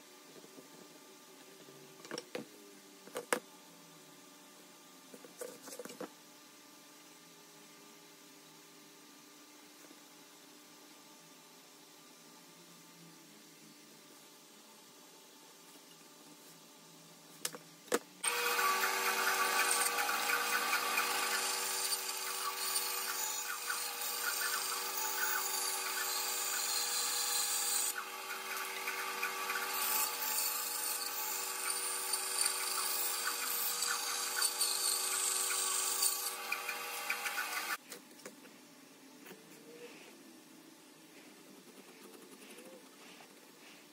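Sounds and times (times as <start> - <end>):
bandsaw motor hum: 18.2 - 37.8.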